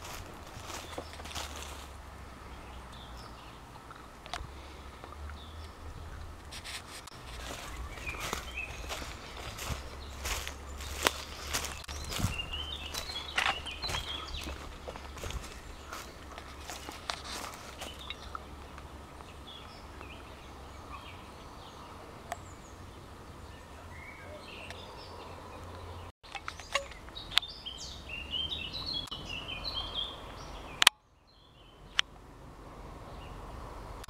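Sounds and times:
small birds chirping: 0.0 - 34.0
steady low rumble: 7.1 - 23.6.

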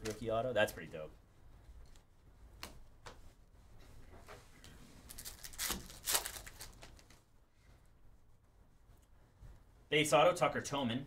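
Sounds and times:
trading cards rustling: 5.0 - 7.2.

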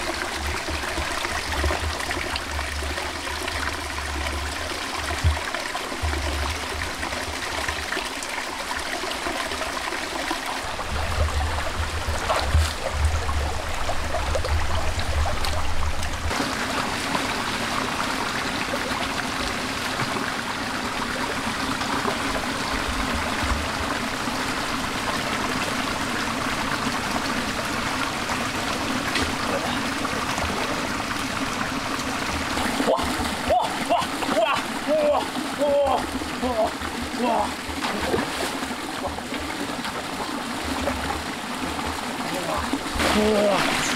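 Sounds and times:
stream water over stones: 0.0 - 43.9
low rumbling: 10.6 - 16.4.

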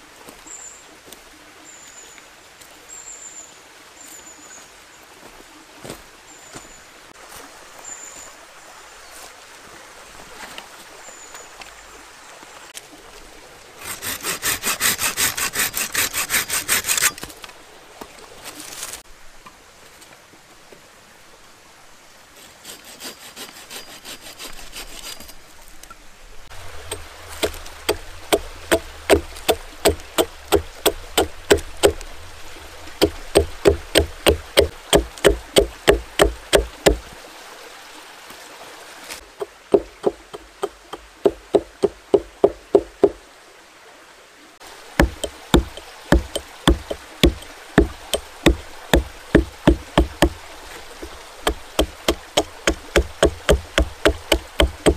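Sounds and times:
hatchet chopping wood: 13.8 - 17.3, 26.9 - 32.0, 33.0 - 37.0, 39.4 - 43.2, 45.0 - 50.4, 51.0 - 54.9.

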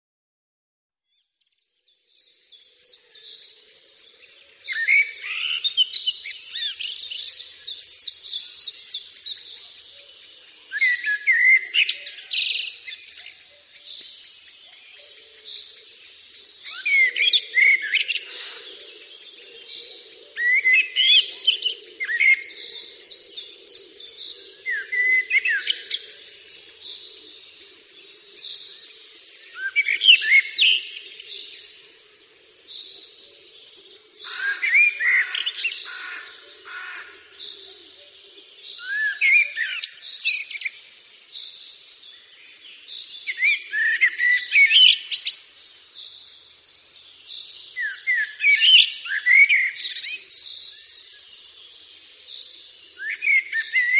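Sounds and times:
songbirds singing: 1.0 - 53.9.

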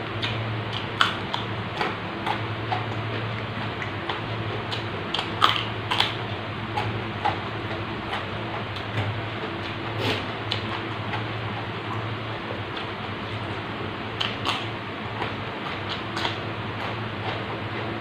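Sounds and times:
crunching of chewed greens: 0.0 - 18.0.

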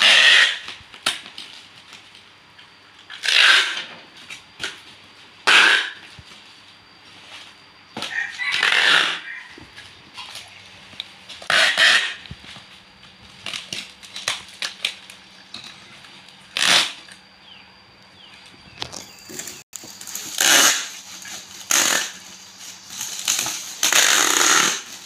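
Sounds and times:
packing tape screeching off dispenser: 0.0 - 1.3, 3.1 - 3.9, 5.4 - 6.1, 8.1 - 9.4, 11.4 - 12.3, 16.5 - 17.2, 18.8 - 25.0
bubble wrap crackling: 19.3 - 25.0.

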